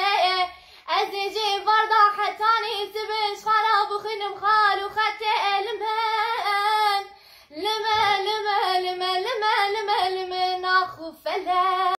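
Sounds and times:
woman singing unaccompanied: 0.0 - 12.0
singer breathing: 0.5 - 0.9, 7.1 - 7.6.

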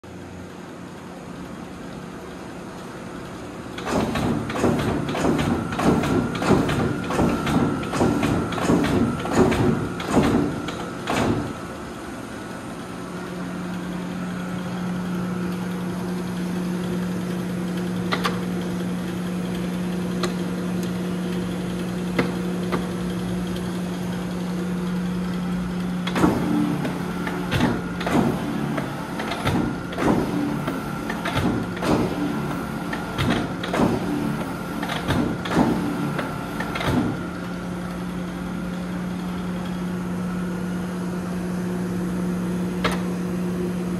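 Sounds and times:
motor and flywheel humming: 0.1 - 43.9
punch press clunking: 3.8 - 11.6, 26.0 - 37.4.

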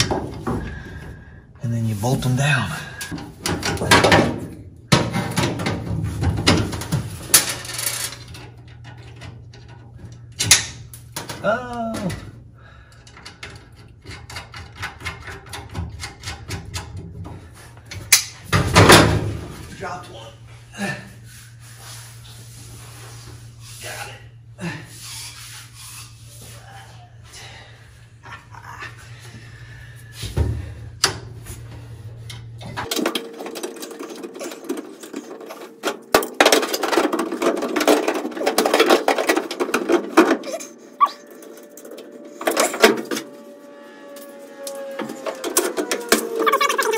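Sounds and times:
metal parts clicking and rattling: 5.0 - 11.4, 12.9 - 17.2, 32.8 - 43.2.

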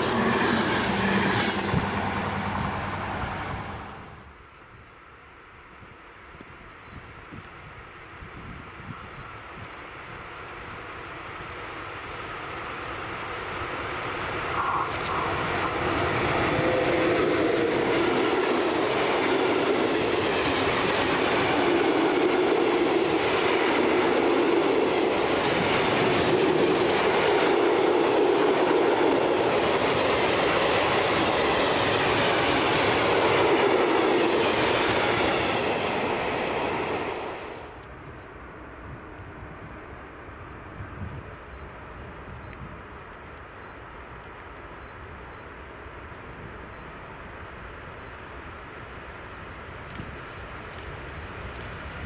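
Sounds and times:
freight train passing: 0.0 - 52.0
steel wheels clattering on rails: 14.9 - 36.8.

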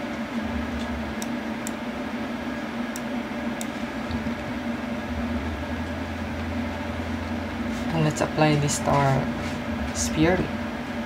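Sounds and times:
background hum and hiss: 0.0 - 11.0.

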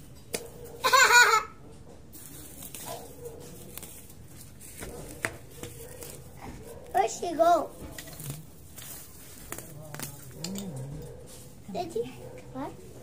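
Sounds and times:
weeds pulled from dry soil: 7.9 - 10.4.

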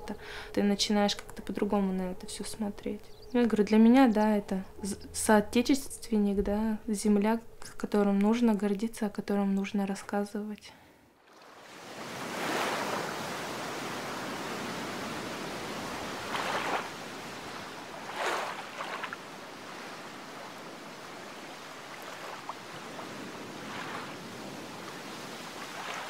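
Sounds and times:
sea waves washing onto shore: 11.3 - 26.0.

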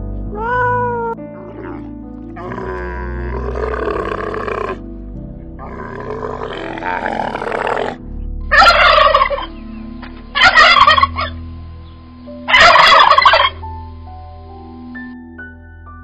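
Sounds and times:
camel grunting: 1.3 - 4.9, 5.6 - 8.1
turkey gobbling: 8.5 - 11.4, 12.5 - 13.6.

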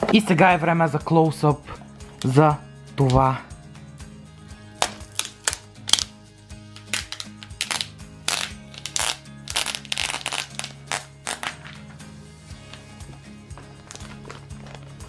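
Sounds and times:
background music: 0.0 - 15.0
plastic film peeling crackles: 4.8 - 6.1, 6.7 - 11.8, 13.7 - 15.0.

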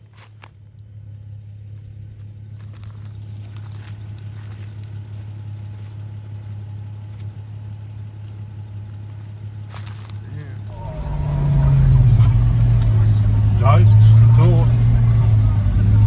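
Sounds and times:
stones clicking under tyres: 0.0 - 11.1
car engine running at low revs: 0.0 - 16.0.

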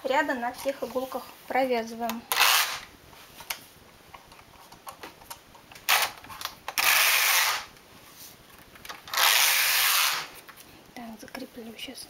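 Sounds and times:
knitting machine carriage sliding: 9.1 - 10.3.

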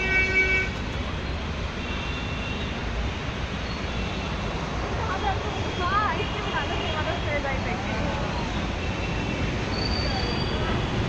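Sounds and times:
vehicle horn: 0.0 - 0.8
distant horns: 0.0 - 0.9
idling engines rumbling: 0.0 - 11.0.

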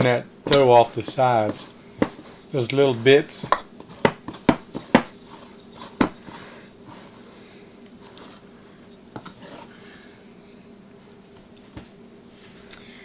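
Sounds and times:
fingers scraping dough off bowl: 0.0 - 8.4, 9.2 - 9.7.

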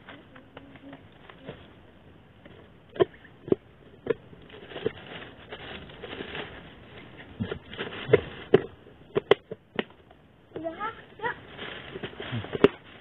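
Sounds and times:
soft rustling: 4.4 - 8.7, 10.6 - 13.0.

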